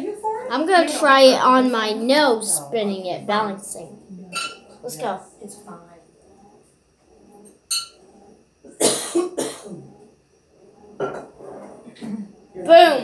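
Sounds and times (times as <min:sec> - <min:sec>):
person coughing: 0:08.7 - 0:10.0.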